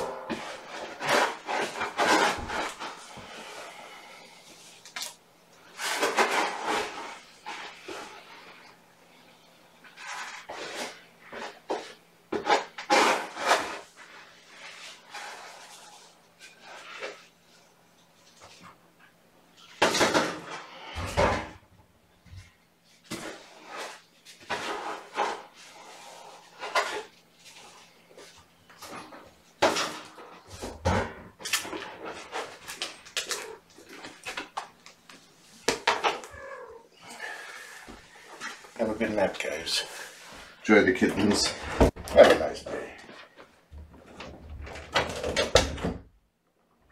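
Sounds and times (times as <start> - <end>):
cat litter scraping: 0.1 - 4.1, 5.6 - 8.6
objects clicking and scraping: 4.8 - 8.2.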